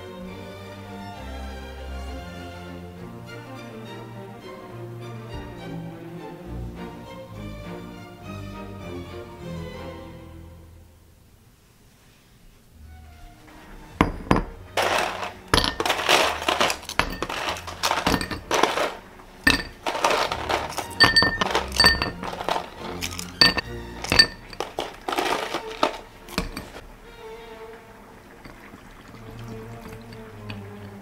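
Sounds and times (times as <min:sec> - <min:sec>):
ice clinking against glass: 0:14.0 - 0:26.8, 0:28.4 - 0:31.0
ice rattling: 0:14.0 - 0:27.0, 0:27.8 - 0:31.0.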